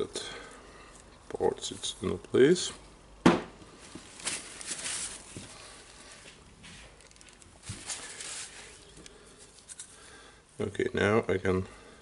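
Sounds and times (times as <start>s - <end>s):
paper towel rustling: 3.8s - 8.9s.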